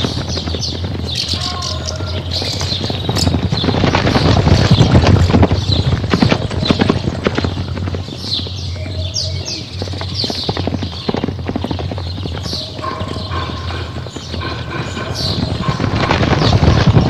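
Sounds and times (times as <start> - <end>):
hoofbeats galloping on dirt: 0.0 - 17.0.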